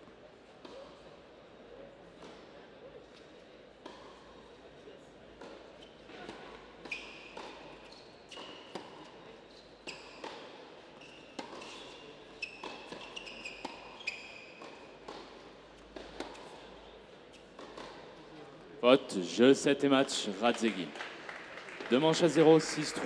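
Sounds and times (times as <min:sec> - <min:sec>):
shoes squeaking on court: 0:05.4 - 0:18.3
tennis ball hit by rackets: 0:14.6 - 0:16.6, 0:17.5 - 0:18.1.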